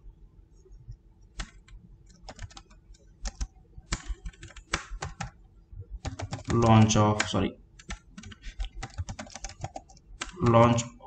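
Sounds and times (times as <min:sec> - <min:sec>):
keyboard typing clicks: 0:01.4 - 0:05.4, 0:06.0 - 0:10.7.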